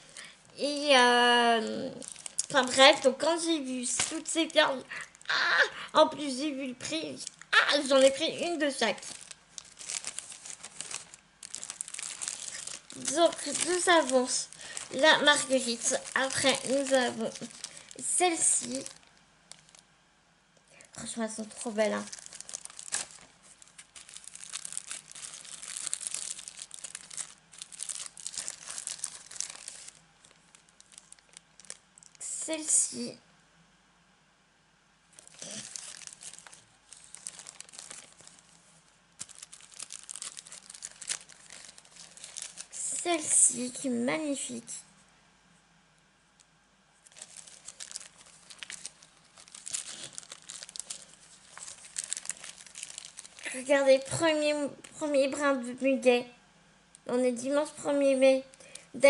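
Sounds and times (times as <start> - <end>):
plastic packaging crinkling: 1.3 - 5.4, 7.0 - 19.9, 20.8 - 32.5, 35.1 - 43.6, 46.4 - 54.2.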